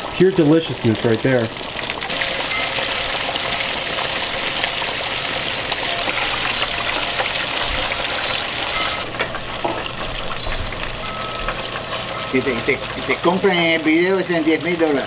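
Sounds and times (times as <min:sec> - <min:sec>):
fish sizzling in deep fryer: 0:00.0 - 0:15.0.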